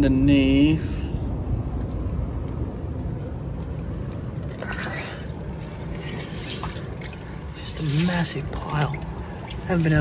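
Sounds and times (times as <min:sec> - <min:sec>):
low steady rumble: 0:00.0 - 0:10.0
water splashing and swishing: 0:03.8 - 0:10.0.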